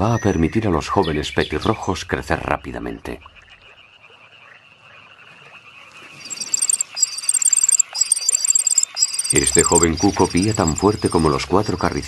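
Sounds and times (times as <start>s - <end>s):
bird chick high-pitched begging call: 6.3s - 11.0s.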